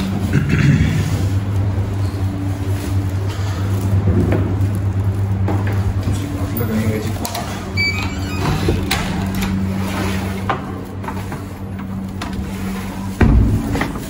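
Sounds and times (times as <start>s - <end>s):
heavy thump: 13.1s - 14.0s.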